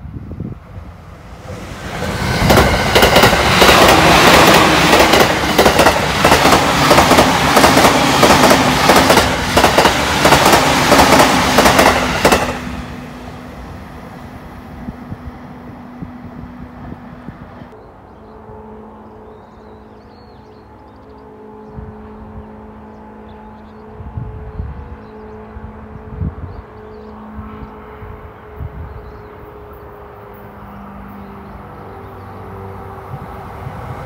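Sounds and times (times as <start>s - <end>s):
train passing at speed: 0.0s - 34.0s
wheels clickety-clack over rail joints: 2.4s - 12.6s.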